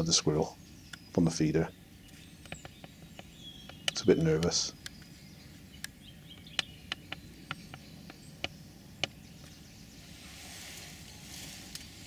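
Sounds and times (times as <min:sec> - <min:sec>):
soft hiss: 0:09.3 - 0:12.0.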